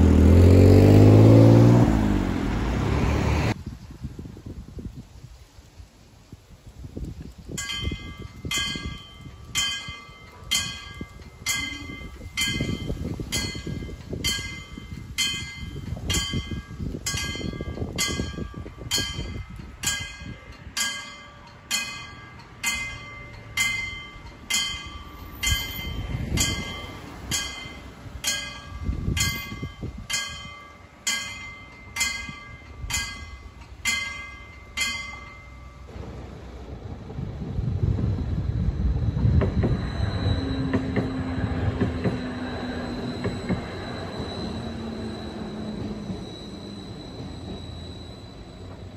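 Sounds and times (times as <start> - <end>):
low rumbling noise: 0.0 - 45.3
level-crossing warning bell: 7.6 - 36.0, 39.8 - 48.9.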